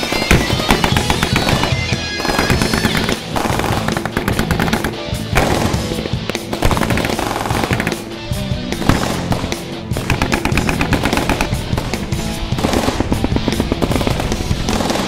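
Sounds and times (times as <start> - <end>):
rapid machine-gun fire: 0.0 - 8.0, 8.8 - 15.0
background music: 0.0 - 15.0.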